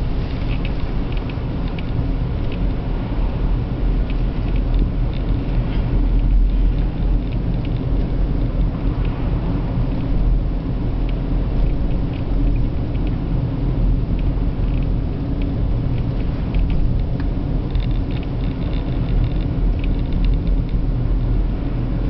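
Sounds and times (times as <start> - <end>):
car engine and road rumble: 0.0 - 22.0
ticks and rattles: 14.1 - 21.3.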